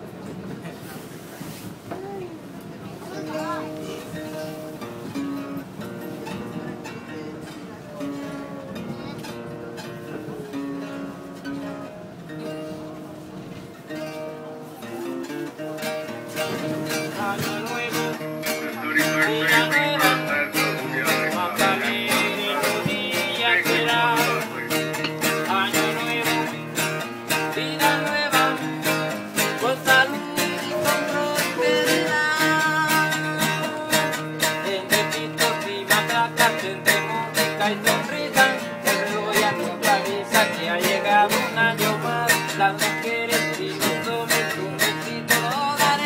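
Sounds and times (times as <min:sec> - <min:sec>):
acoustic guitar strumming: 0:03.0 - 0:46.0
man singing: 0:14.8 - 0:46.0.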